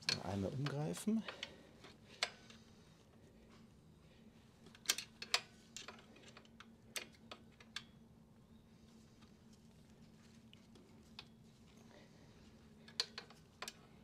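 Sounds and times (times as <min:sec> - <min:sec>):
clicks of metal parts and tools: 0:00.0 - 0:02.6, 0:04.7 - 0:07.9, 0:12.8 - 0:13.8
faint steady hum: 0:00.0 - 0:14.0.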